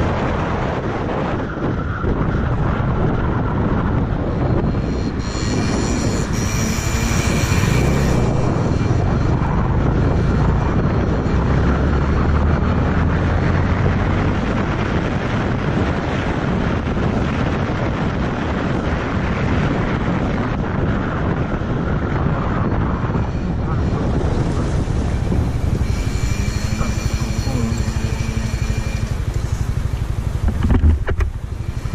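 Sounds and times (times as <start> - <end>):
motorcycle engine drone: 0.0 - 31.9
wind rushing over microphone: 0.0 - 31.9
faint high whine: 4.4 - 11.3, 22.9 - 31.9.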